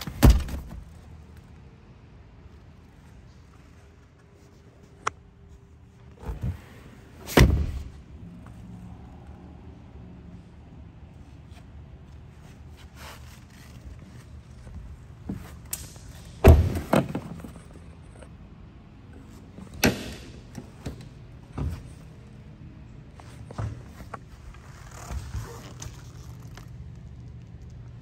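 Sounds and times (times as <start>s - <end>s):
car door shutting: 6.2s - 8.0s.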